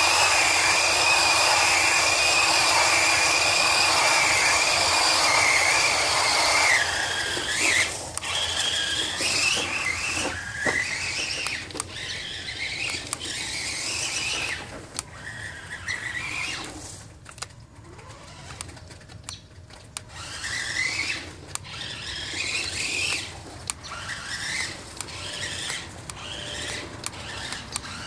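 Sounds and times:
electric motor whining: 0.0 - 28.0
sharp clicks: 11.4 - 13.4, 17.2 - 17.6, 22.4 - 28.0.

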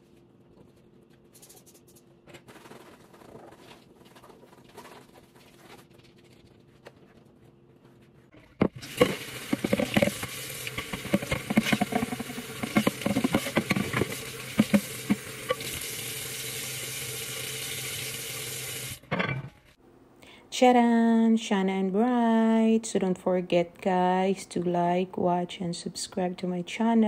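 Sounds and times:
tap water running into sink: 8.6 - 19.0.

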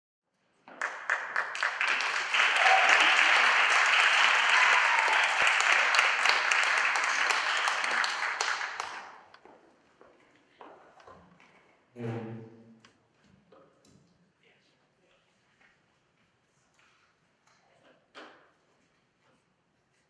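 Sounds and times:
audience applauding: 0.7 - 9.4.

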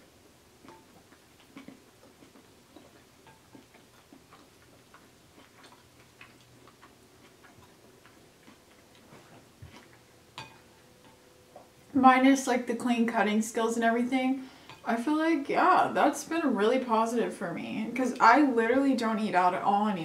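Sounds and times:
person chewing food: 0.6 - 11.9.

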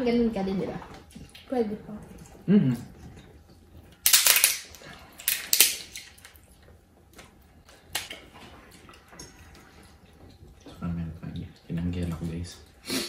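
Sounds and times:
shellfish shell cracking: 4.0 - 6.4, 7.7 - 8.3.

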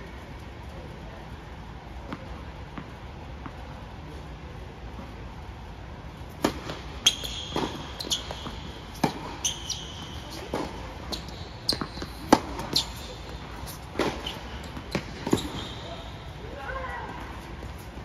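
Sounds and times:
tennis ball bouncing: 2.0 - 3.7, 6.3 - 16.4
racket hitting tennis ball: 6.3 - 16.2
shoes squeaking on court: 6.3 - 18.0.

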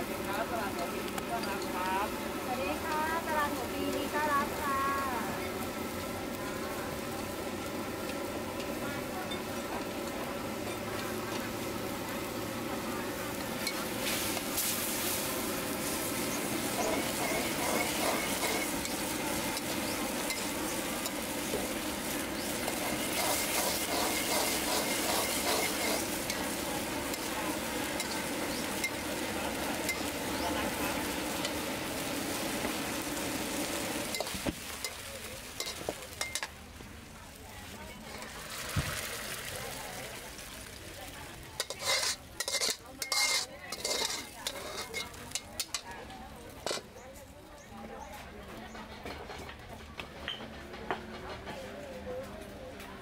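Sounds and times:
gravy bubbling and sizzling in wok: 0.0 - 53.0
metal ladle scraping pan: 15.8 - 31.7, 41.6 - 45.8.

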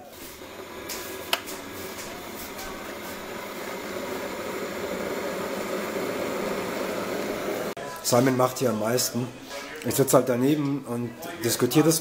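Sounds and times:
kettle heating water rushing: 0.0 - 7.8
kettle switch click: 1.3 - 1.5.

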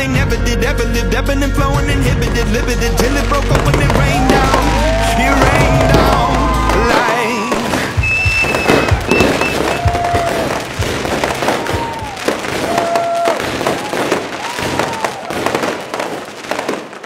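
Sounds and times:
fireworks booms: 1.8 - 17.0
fireworks crackling: 1.8 - 17.0
whistling fireworks: 2.8 - 17.0.

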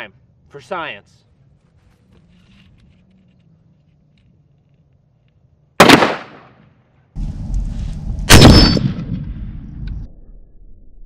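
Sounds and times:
rifle gunshots: 5.8 - 6.6, 8.3 - 9.3
steady low rumble: 7.2 - 11.0.

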